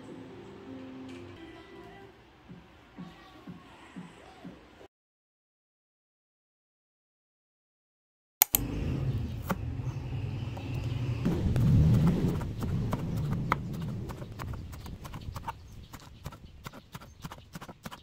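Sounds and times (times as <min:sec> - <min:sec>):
low rumble: 0:08.6 - 0:15.8.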